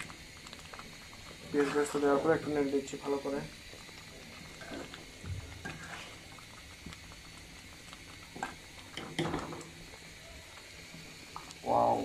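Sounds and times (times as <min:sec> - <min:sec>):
thick stew bubbling and squelching: 0:00.0 - 0:12.0
ladle scraping pan: 0:05.6 - 0:06.2.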